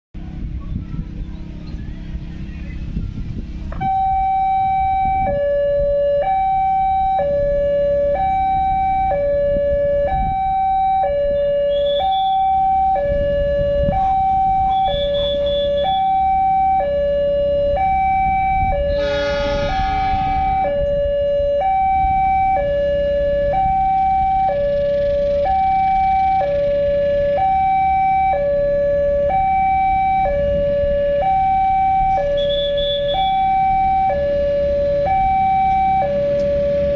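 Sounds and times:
level crossing two-tone alarm: 3.8 - 36.9
loud blare: 18.0 - 26.4.

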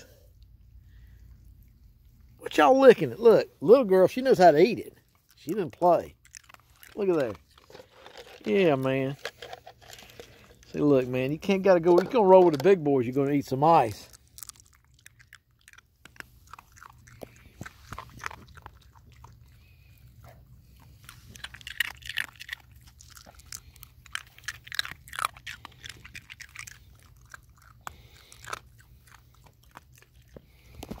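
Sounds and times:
dog crunching ice cubes: 4.1 - 31.0.

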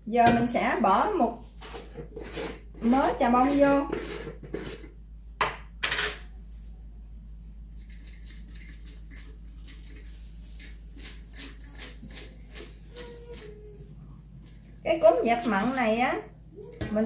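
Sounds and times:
sharp clatters in mixing bowl: 7.8 - 13.8.

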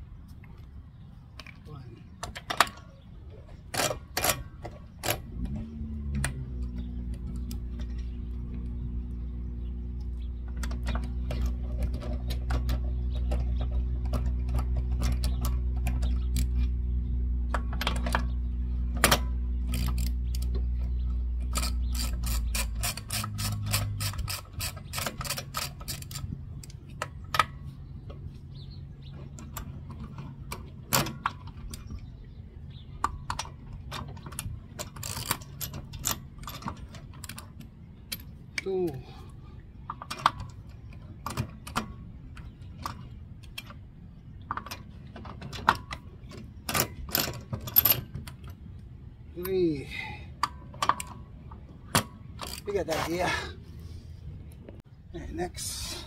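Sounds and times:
steady low hum: 3.0 - 56.0
ratchet wrench clicking: 21.5 - 26.3.

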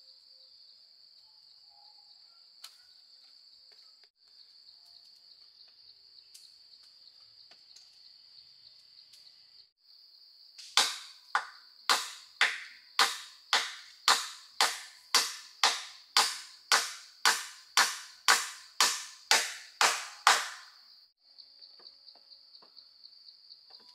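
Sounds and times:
sharp blows on wood: 10.6 - 20.8.

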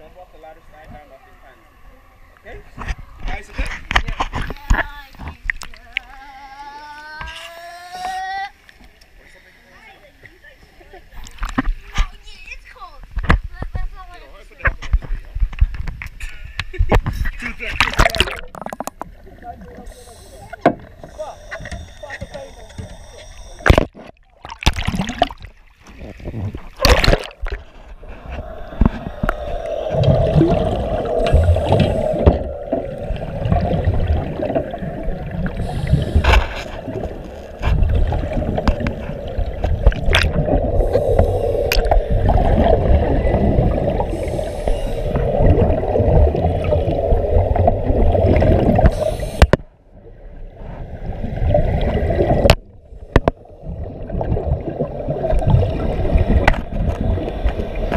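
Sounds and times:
underwater rushing and bubbles: 16.8 - 57.9.

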